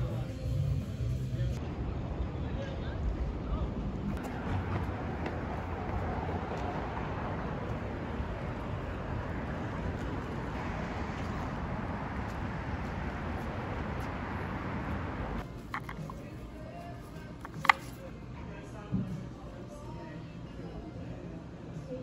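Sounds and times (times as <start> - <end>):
low rumbling traffic noise: 0.0 - 18.2.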